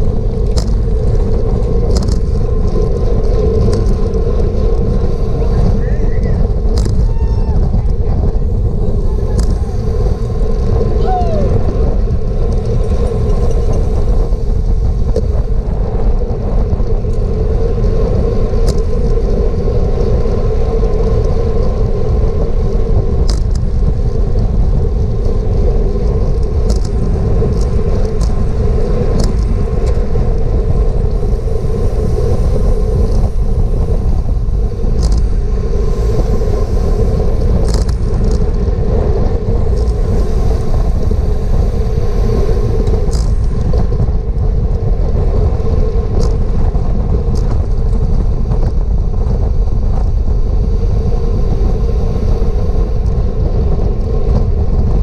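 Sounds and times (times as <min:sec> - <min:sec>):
constant hum: 0:00.0 - 0:55.0
wind buffeting microphone: 0:00.0 - 0:55.0.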